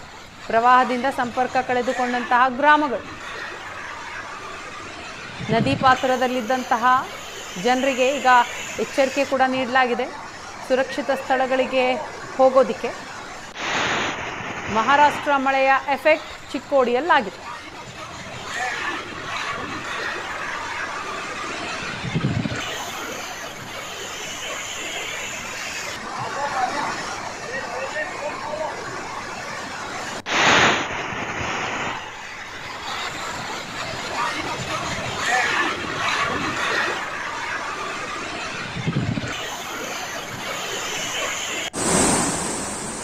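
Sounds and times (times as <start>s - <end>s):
low rumble: 41.8s - 43.0s.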